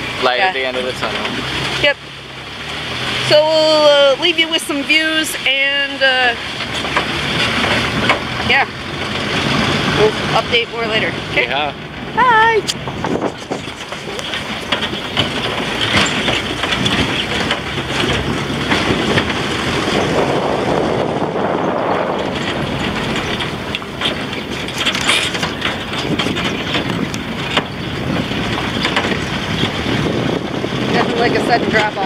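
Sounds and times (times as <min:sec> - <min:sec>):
rattling: 0:00.0 - 0:32.0
truck road noise: 0:00.0 - 0:32.0
knocks from bumps: 0:06.4 - 0:11.6, 0:12.7 - 0:32.0.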